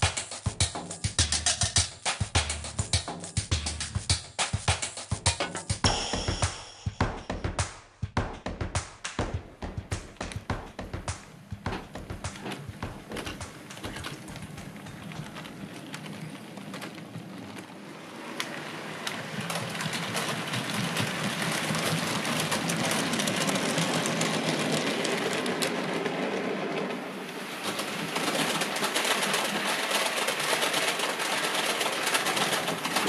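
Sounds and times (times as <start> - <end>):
wheels clicking on track: 9.2 - 33.0.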